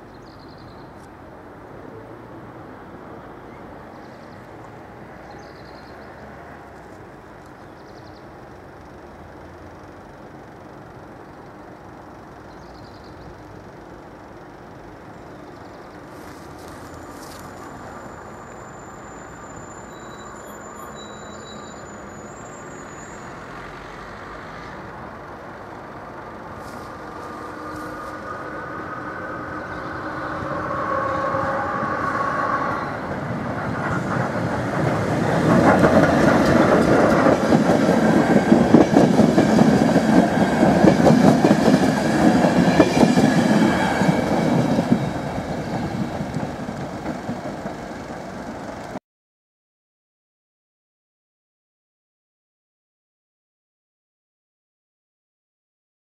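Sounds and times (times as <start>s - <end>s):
train wheels rumbling and clattering: 15.9s - 18.8s, 24.6s - 49.0s.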